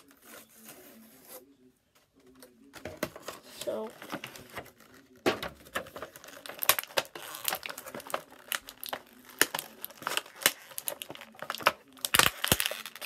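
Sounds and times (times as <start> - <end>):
plastic packaging crackling: 2.6 - 13.0.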